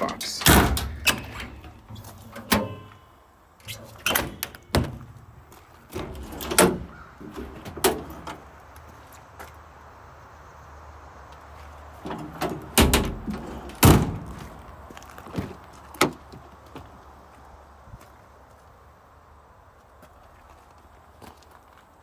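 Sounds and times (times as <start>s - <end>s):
door latch clicks: 0.2s - 1.7s.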